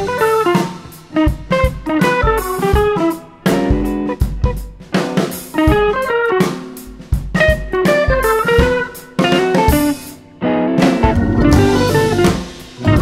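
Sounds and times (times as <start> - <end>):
drum beat: 0.0 - 10.1, 10.8 - 13.0
plucked guitar melody: 7.8 - 13.0.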